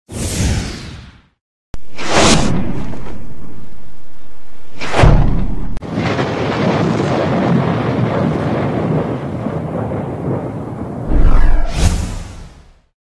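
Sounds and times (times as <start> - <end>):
whoosh: 0.2 - 3.8, 11.0 - 12.9
deep boom: 4.7 - 7.5, 11.0 - 12.8.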